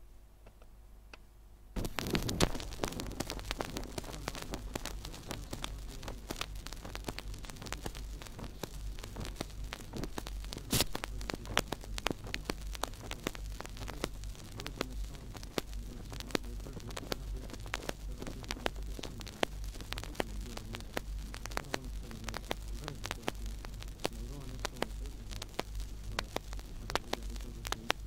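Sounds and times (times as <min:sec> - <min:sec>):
record crackle and clicks: 0:00.0 - 0:28.0
steady low hum: 0:00.0 - 0:28.0.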